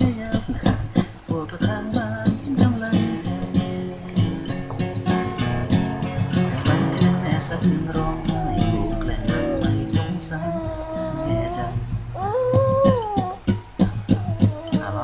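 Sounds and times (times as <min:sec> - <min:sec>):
acoustic guitar fingerpicked: 0:00.0 - 0:15.0
high gliding hums: 0:01.8 - 0:12.4.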